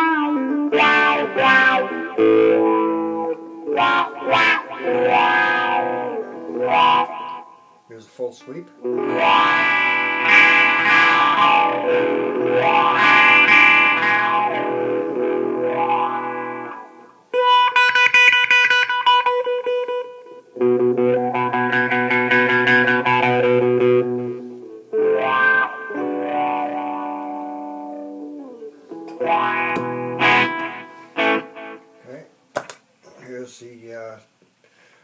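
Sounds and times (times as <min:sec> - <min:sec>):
electric guitar chords with wah pedal: 0:00.0 - 0:07.8, 0:08.8 - 0:32.0.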